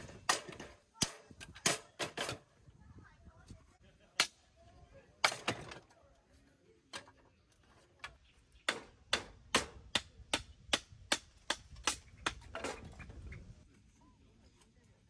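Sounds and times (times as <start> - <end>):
hatchet splitting wood: 8.6 - 12.9.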